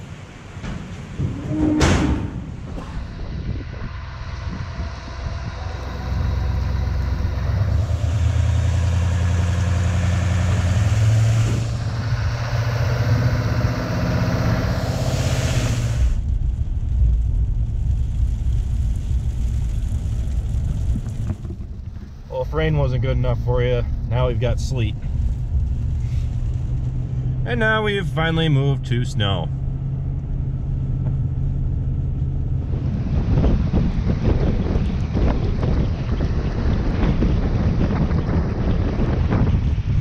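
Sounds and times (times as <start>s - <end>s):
truck engine accelerating: 0.0s - 40.0s
tyres hissing on wet road: 5.7s - 16.2s, 25.2s - 27.0s.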